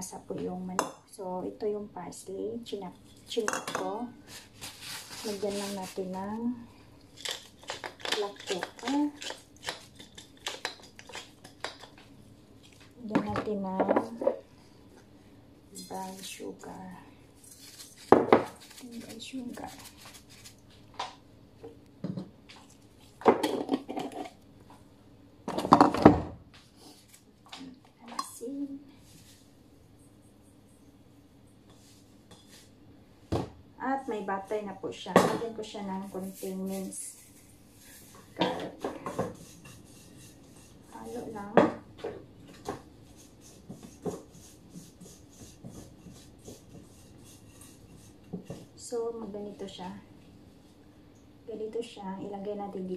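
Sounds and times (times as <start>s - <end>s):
soft scraping in a bowl: 2.9s - 6.4s, 31.6s - 32.8s, 35.8s - 41.6s, 42.5s - 49.8s.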